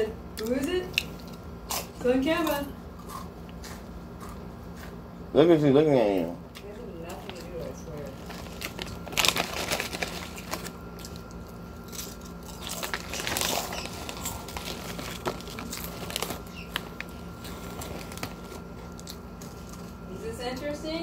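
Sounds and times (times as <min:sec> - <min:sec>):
chewing crunchy chips: 0:00.4 - 0:05.2, 0:06.6 - 0:20.1
chip bag crinkling: 0:07.1 - 0:20.1.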